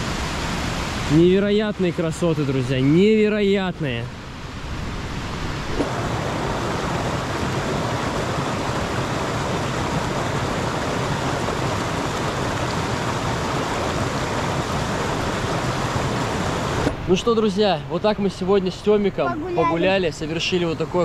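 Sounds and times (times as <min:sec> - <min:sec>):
waterfall rushing: 0:00.0 - 0:17.6, 0:19.1 - 0:21.0.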